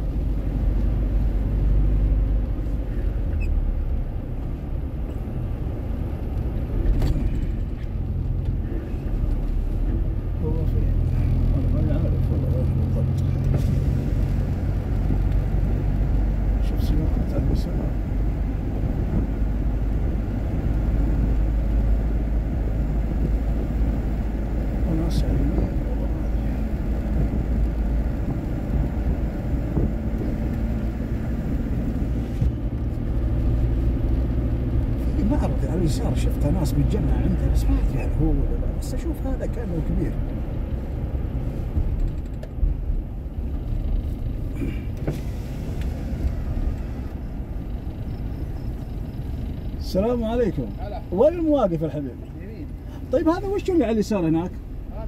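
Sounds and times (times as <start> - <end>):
car interior road and engine noise: 0.0 - 55.0.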